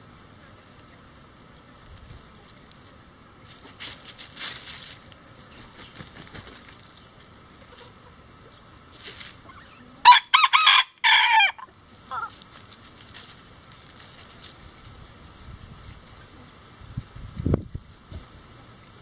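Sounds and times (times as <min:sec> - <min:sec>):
rooster crowing: 0:10.0 - 0:12.3.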